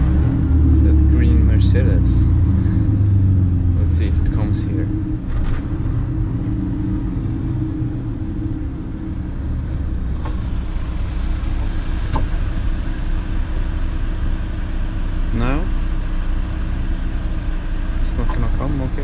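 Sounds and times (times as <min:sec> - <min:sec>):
truck diesel engine running: 0:00.0 - 0:19.0.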